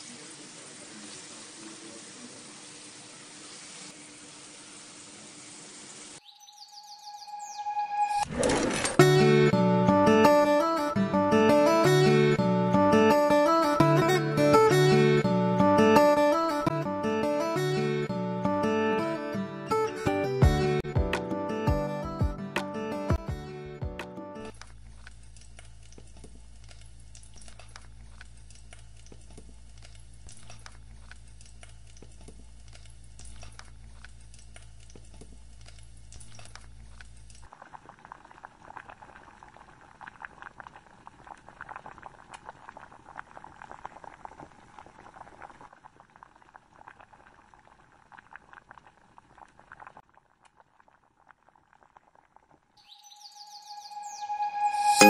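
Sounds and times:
onions sizzling in a frying pan: 0:00.0 - 0:06.1
chicken sizzling in sauce: 0:00.0 - 0:06.2.

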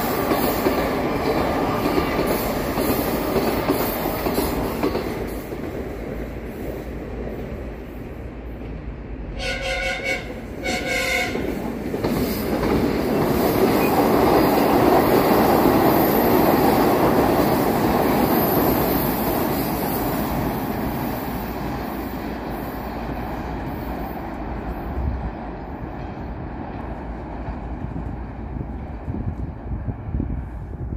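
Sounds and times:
train rumbling past: 0:00.0 - 0:30.9
train horn blasts: 0:09.4 - 0:11.5.

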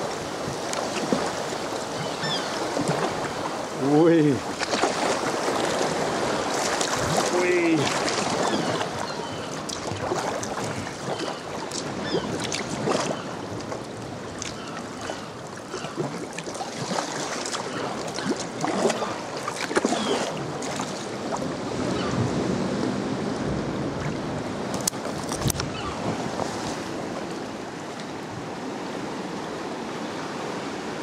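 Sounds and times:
swell washing against rocks: 0:00.0 - 0:21.7
paddle splashes: 0:00.0 - 0:29.8
water lapping around kayak: 0:00.0 - 0:31.0.

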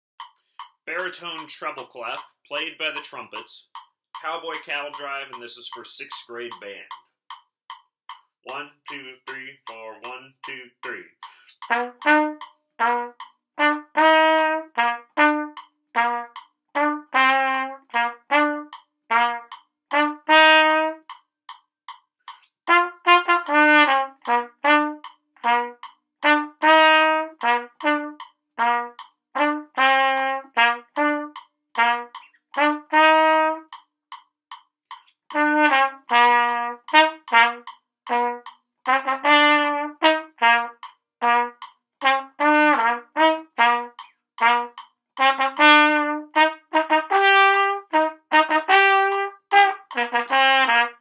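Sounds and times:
solo trumpet melody: 0:11.7 - 0:21.0, 0:22.7 - 0:33.7, 0:35.4 - 0:51.0.

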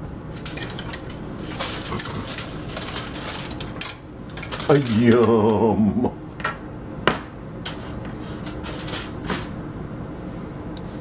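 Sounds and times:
steady background hum: 0:00.0 - 0:11.0
metal tongs clicking on rack: 0:00.4 - 0:01.2.

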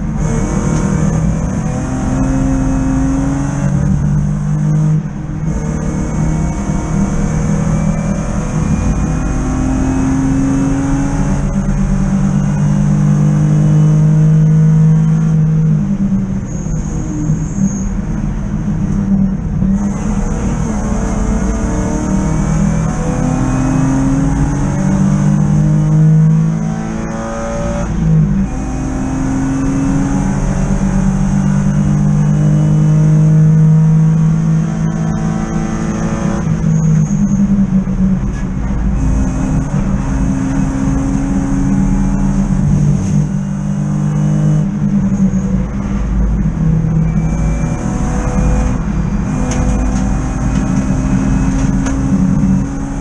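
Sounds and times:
race car engine accelerating: 0:00.0 - 0:53.0.

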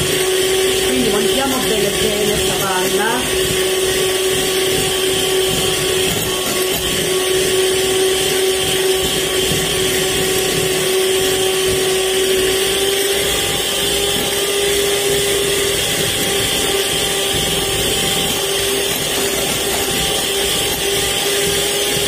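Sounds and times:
electric hand mixer whipping cream: 0:00.0 - 0:22.0.

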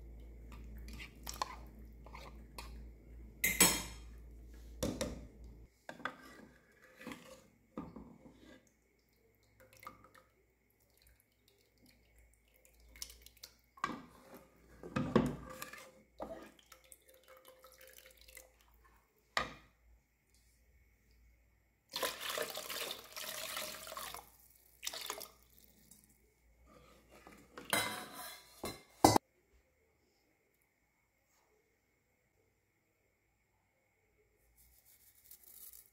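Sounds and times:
utensils scraping metal pot: 0:05.9 - 0:07.6, 0:15.3 - 0:16.4
water and lentils pouring: 0:16.2 - 0:18.8, 0:21.9 - 0:26.2.

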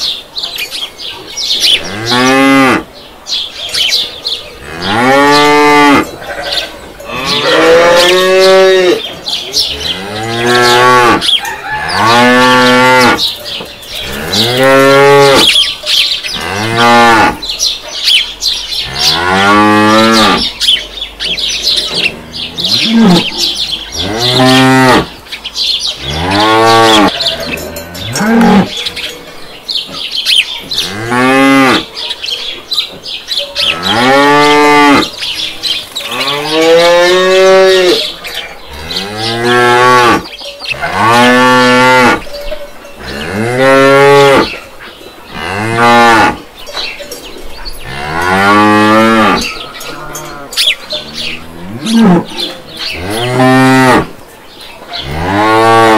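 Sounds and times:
cows mooing: 0:01.8 - 0:02.9, 0:04.6 - 0:15.7, 0:16.3 - 0:17.5, 0:18.7 - 0:20.7, 0:21.3 - 0:25.2, 0:26.0 - 0:29.1, 0:30.7 - 0:31.9, 0:33.4 - 0:44.7, 0:45.3 - 0:46.5, 0:47.7 - 0:54.2, 0:54.9 - 0:55.9.

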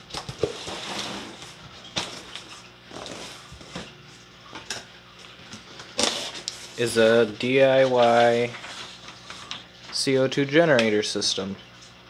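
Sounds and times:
steady low hum: 0:00.0 - 0:12.0
cardboard and paper rustling: 0:07.6 - 0:10.0.

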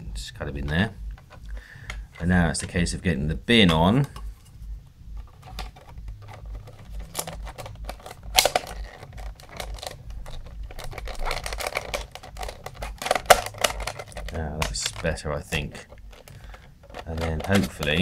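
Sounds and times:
plastic toy parts clicking and knocking: 0:05.2 - 0:18.0.

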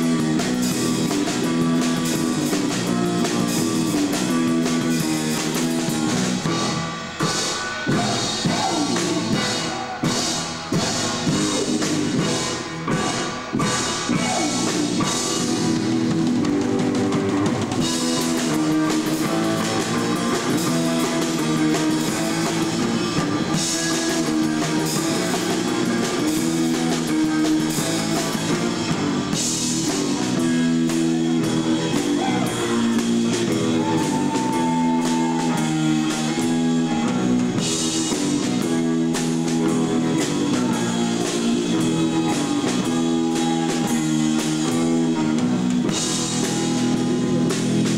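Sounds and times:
drum kit beat: 0:00.0 - 0:47.9
electric guitar: 0:00.0 - 0:47.9.

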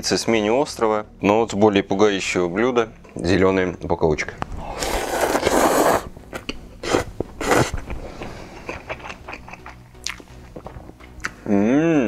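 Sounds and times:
man slurping noodles: 0:04.6 - 0:06.1, 0:06.8 - 0:10.7
wet chewing: 0:04.7 - 0:11.4.

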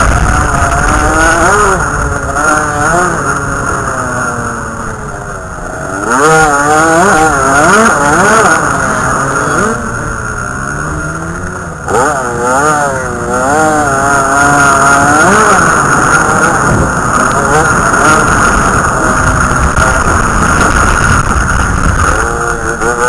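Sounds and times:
dirt bike engine revving: 0:00.0 - 0:23.0.

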